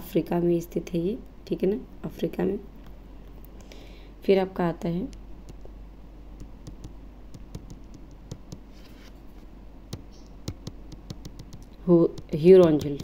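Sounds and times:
low steady hum: 0:00.0 - 0:13.0
stylus tapping on touchscreen: 0:06.4 - 0:08.7, 0:09.9 - 0:13.0.

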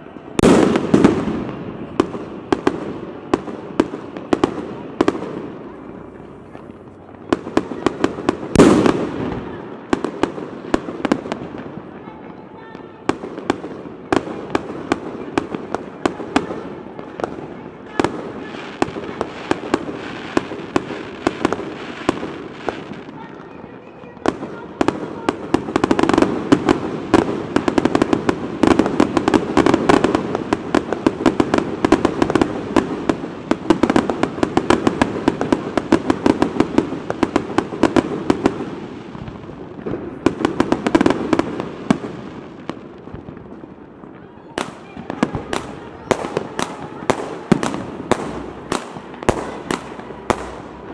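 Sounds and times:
fireworks bangs and crackling: 0:00.0 - 0:50.9.

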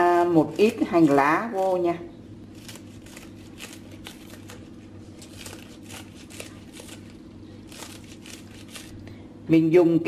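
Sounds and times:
steady low hum: 0:00.0 - 0:10.0
scissors snipping green onions: 0:02.6 - 0:07.1, 0:07.7 - 0:09.0.

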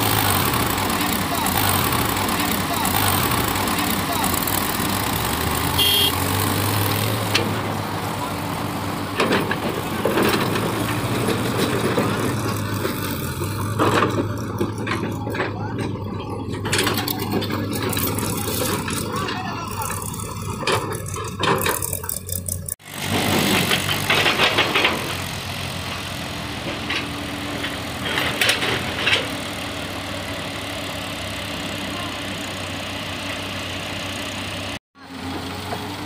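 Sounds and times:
diesel engines running: 0:00.0 - 0:36.0
excavator bucket rattling: 0:07.1 - 0:25.4.

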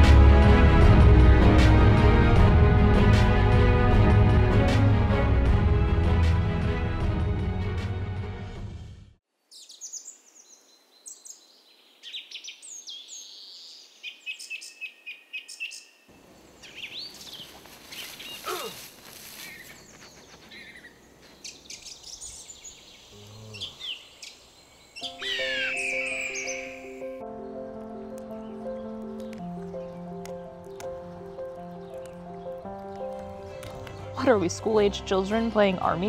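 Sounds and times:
music: 0:00.0 - 0:09.2, 0:25.0 - 0:36.0
birds chirping and whistling: 0:12.0 - 0:16.0, 0:16.6 - 0:18.5, 0:19.4 - 0:27.2, 0:28.3 - 0:34.6.

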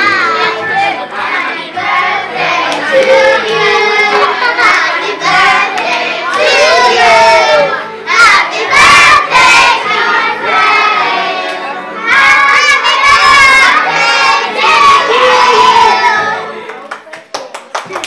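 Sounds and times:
crowd singing together: 0:00.0 - 0:16.6
children shouting: 0:02.6 - 0:16.4.

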